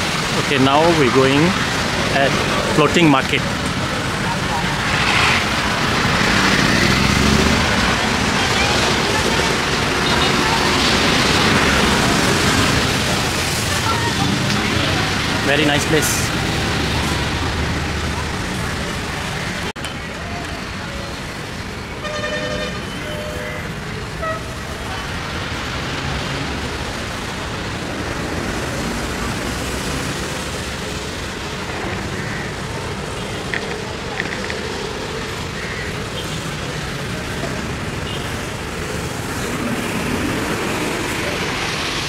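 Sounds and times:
road traffic noise: 0:00.0 - 0:42.0
vehicle horn tooting: 0:22.0 - 0:24.6.

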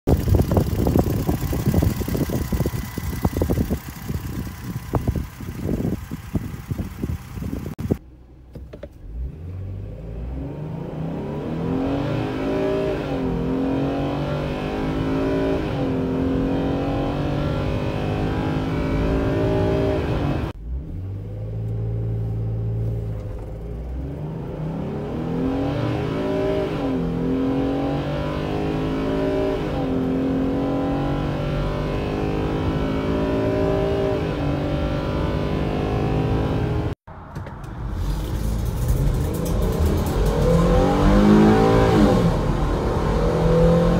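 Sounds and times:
fast ticking in engine bay: 0:00.1 - 0:08.0
van engine idling and accelerating: 0:00.1 - 0:10.6, 0:15.8 - 0:26.3, 0:31.2 - 0:43.9.

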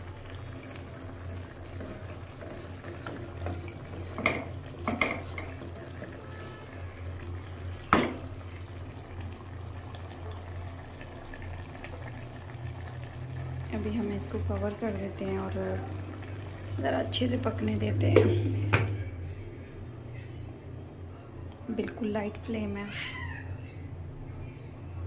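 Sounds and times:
gravy simmering: 0:00.0 - 0:19.1.

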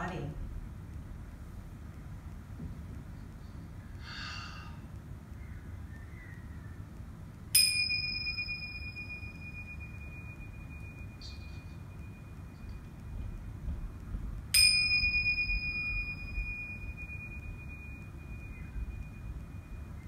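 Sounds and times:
brass chime ringing: 0:07.6 - 0:12.8, 0:14.5 - 0:20.0
faint clink: 0:07.6 - 0:12.9.

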